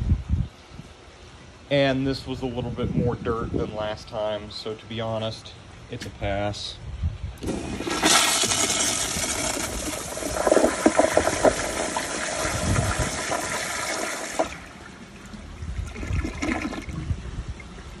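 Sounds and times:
toilet flushing: 7.4 - 17.1
water gurgling: 7.4 - 18.0.

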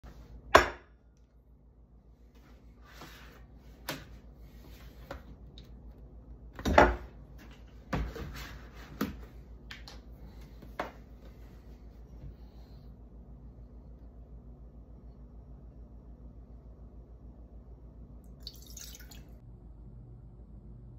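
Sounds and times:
kitchen items knocking and clunking: 6.6 - 9.2.

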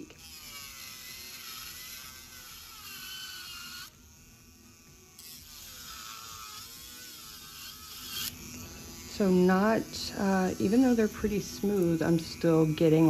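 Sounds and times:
drill bit grinding acrylic: 0.0 - 13.0
nail drill motor whining: 0.0 - 13.0.

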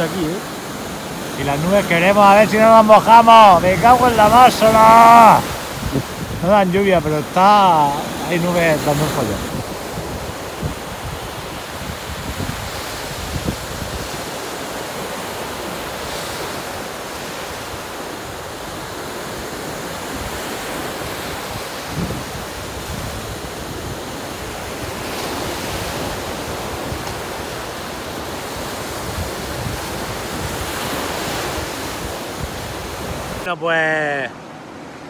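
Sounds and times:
sea surf washing onto beach: 0.0 - 35.0
wind on microphone: 3.5 - 14.6, 18.8 - 33.5.

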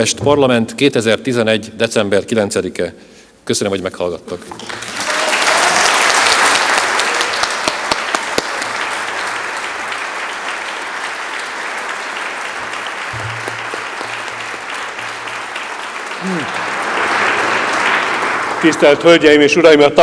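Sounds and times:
audience applauding: 4.5 - 19.8.

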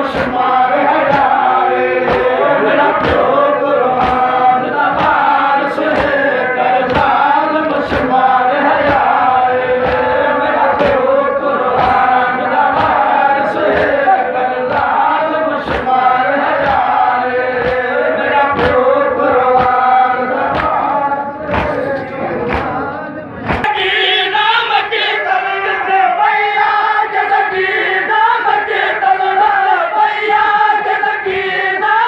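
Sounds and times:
crowd of men chanting: 0.0 - 32.0
hands slapping chests: 2.1 - 2.3, 3.0 - 3.4, 4.0 - 4.4, 5.8 - 7.2, 9.8 - 10.1, 12.7 - 13.1, 15.6 - 16.0, 16.6 - 17.0, 17.6 - 18.9, 19.6 - 20.8, 21.5 - 22.8, 23.4 - 23.7.

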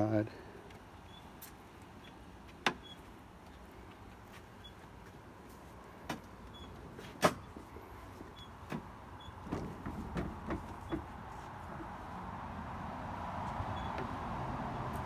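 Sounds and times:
footsteps on wooden deck: 0.7 - 12.2.

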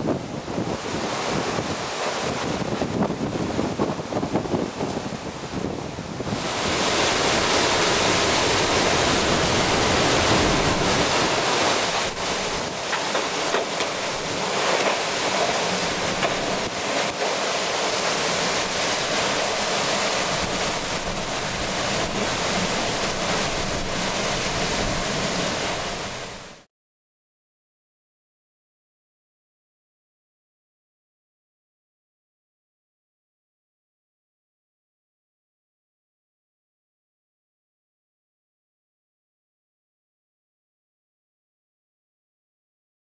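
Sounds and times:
wind buffeting microphone: 0.0 - 17.2, 17.8 - 26.5
strong wind blowing: 0.0 - 26.6.

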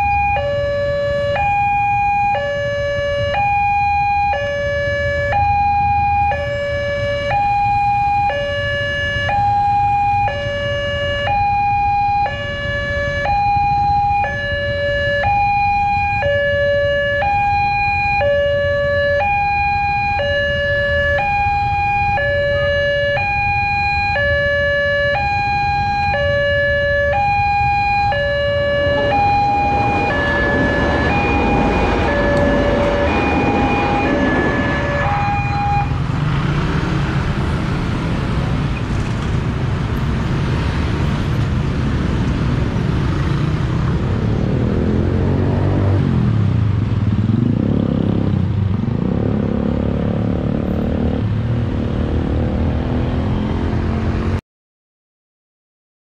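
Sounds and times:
two-tone level crossing alarm: 0.0 - 36.0
train passing over crossing: 28.0 - 38.0.

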